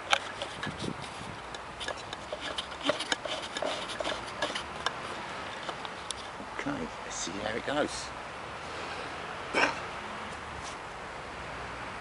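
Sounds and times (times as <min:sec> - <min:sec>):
camera handling clicks and rubbing: 0:00.0 - 0:06.4.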